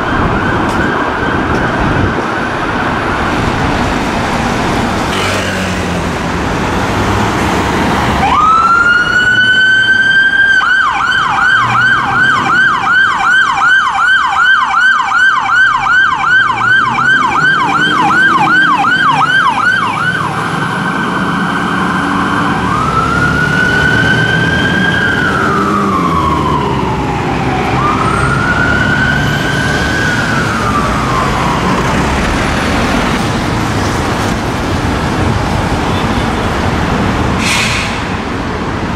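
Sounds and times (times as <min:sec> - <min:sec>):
two-tone electronic siren: 0:00.0 - 0:03.8, 0:08.1 - 0:33.0
road noise: 0:00.0 - 0:38.9
diesel engine pulling away: 0:03.1 - 0:10.7, 0:16.2 - 0:35.8, 0:36.7 - 0:38.9.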